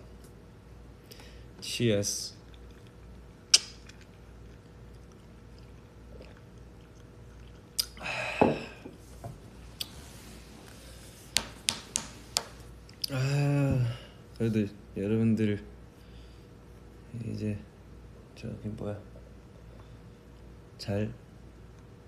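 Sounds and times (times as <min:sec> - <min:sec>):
sipping and swallowing: 0:03.8 - 0:08.1.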